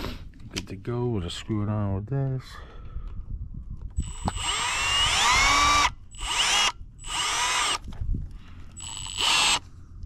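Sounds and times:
power driver motor whine: 0:04.0 - 0:07.9, 0:08.8 - 0:09.6.

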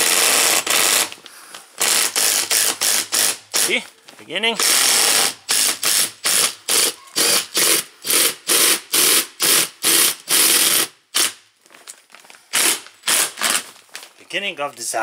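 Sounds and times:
impact driver rattling: 0:00.0 - 0:01.2, 0:01.8 - 0:03.7, 0:04.6 - 0:11.4, 0:12.5 - 0:13.7.

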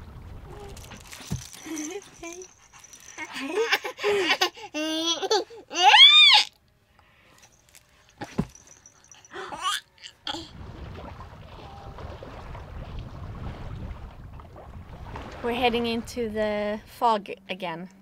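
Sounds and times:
baby squealing: 0:01.8 - 0:06.5, 0:09.2 - 0:10.5.

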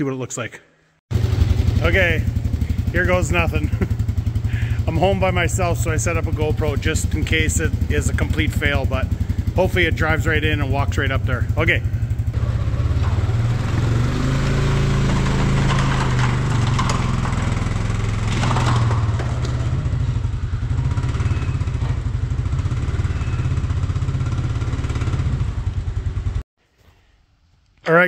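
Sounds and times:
atv engine running: 0:01.1 - 0:26.4
tracks clattering on metal ramps: 0:12.2 - 0:22.8.

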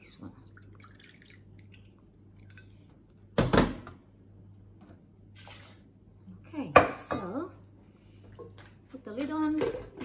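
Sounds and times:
water pouring into blender jar: 0:00.5 - 0:02.9.

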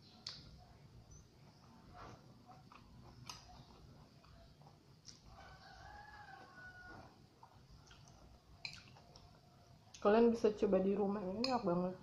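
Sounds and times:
rooster crowing: 0:05.3 - 0:07.2.

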